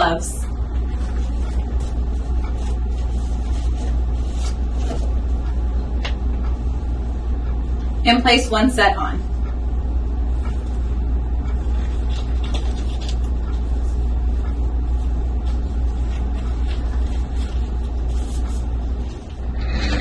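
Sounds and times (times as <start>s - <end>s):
low rumbling hum: 0.0s - 20.0s
disposable gloves crinkling: 0.7s - 5.4s, 11.7s - 19.4s.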